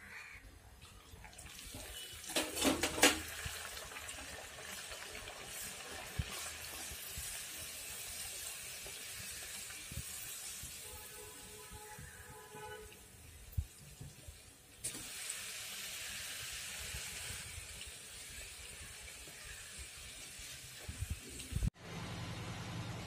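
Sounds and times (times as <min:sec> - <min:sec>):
dough sizzling in hot oil: 0:01.2 - 0:21.8.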